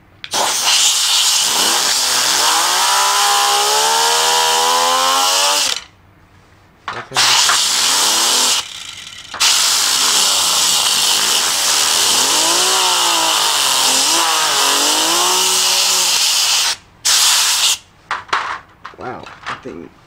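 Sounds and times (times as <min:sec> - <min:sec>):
compressed air hissing: 0:00.3 - 0:05.8, 0:07.2 - 0:08.7, 0:09.4 - 0:17.9
fidget spinner whirring: 0:07.2 - 0:16.6.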